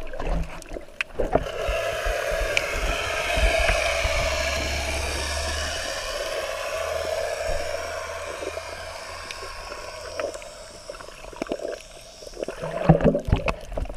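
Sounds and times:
water bubbling and sloshing: 0.0 - 13.9
underwater rushing hiss: 1.2 - 13.9
clicks underwater: 12.4 - 13.9.

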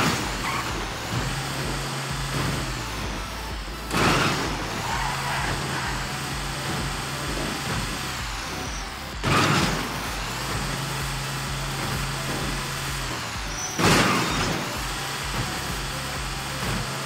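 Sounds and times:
heavy vehicle engine running: 0.0 - 17.0.

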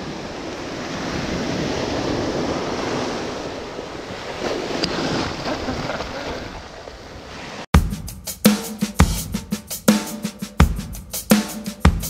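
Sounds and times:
sea waves washing ashore: 0.0 - 7.7.

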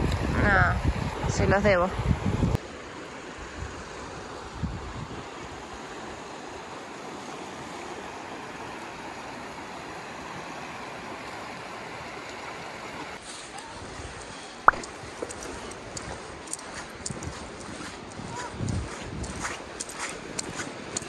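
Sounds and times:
river rushing over stones: 5.3 - 21.0.

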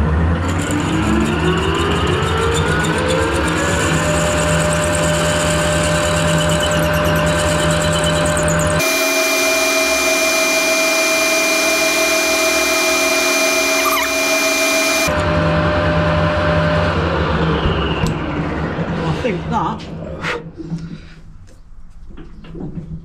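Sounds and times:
lathe motor hum: 0.5 - 17.4
drill whine and cutting hiss: 8.8 - 15.1.

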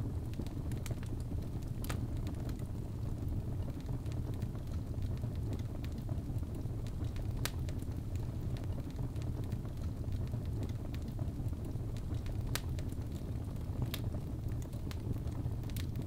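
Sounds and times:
fire crackling: 0.0 - 16.0
loud fire pops: 3.3 - 16.0.

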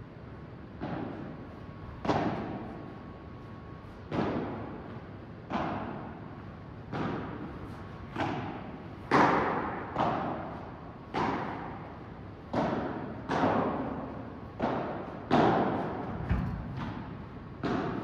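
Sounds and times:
rackets hitting ball with echo: 0.7 - 2.9, 4.0 - 18.0.

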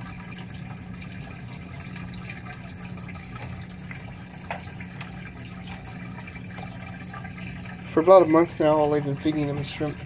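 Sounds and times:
low even hum: 0.0 - 10.0
water trickling: 0.0 - 10.0.

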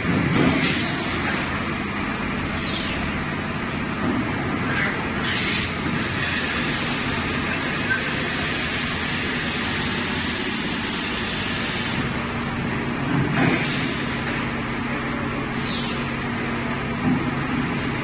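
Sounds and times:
machine hiss: 0.3 - 1.2, 5.2 - 12.1, 13.3 - 14.2.

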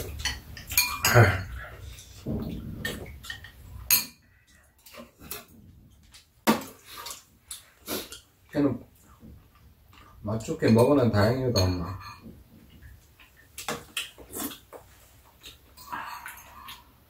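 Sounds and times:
utensils clinking on ceramic bowls: 0.0 - 2.2, 10.4 - 12.4.

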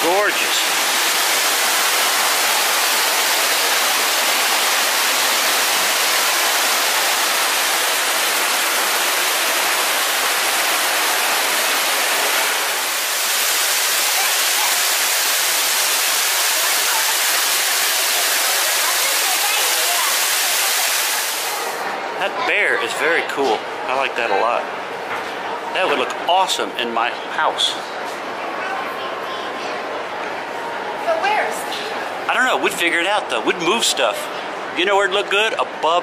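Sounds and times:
waterfall rushing: 0.0 - 22.2.

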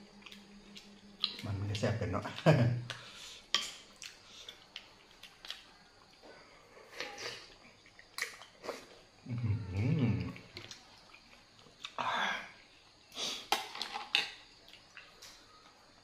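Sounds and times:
chewing clicks and smacks: 0.2 - 1.5, 3.6 - 6.2, 10.3 - 12.0, 14.2 - 15.4
man humming mmm: 9.2 - 10.5.

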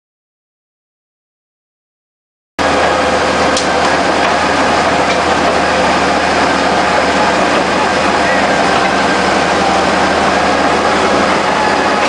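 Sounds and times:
diesel engine under load: 2.6 - 12.0
steel tracks clattering: 2.6 - 12.0.

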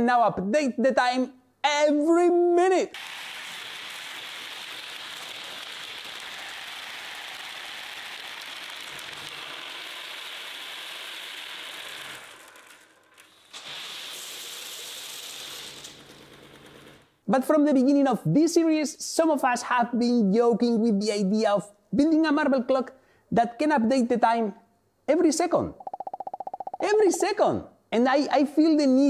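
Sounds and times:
marbles clattering through plastic tracks: 3.0 - 17.1.

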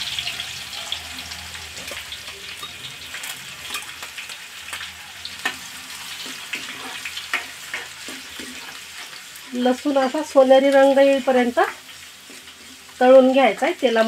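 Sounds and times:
spices sizzling in hot oil: 0.0 - 14.0
steel ladle stirring: 5.4 - 9.4.

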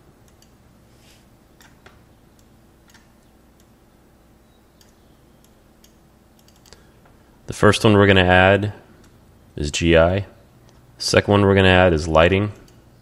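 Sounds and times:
faint low hum: 0.0 - 13.0
computer mouse clicks: 0.2 - 0.6, 1.6 - 3.7, 4.8 - 6.8.

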